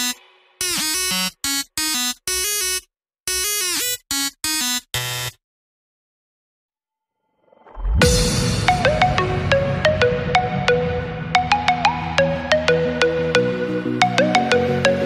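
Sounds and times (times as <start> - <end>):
choppy synth music: 8.0 - 15.0.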